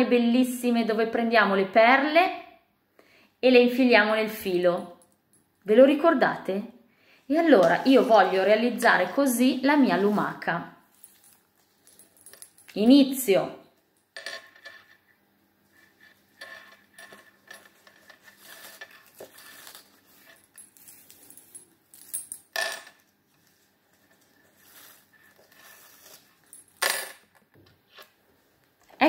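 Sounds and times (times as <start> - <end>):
rustling of string and paper: 7.5 - 12.8, 15.6 - 22.1, 23.1 - 26.6.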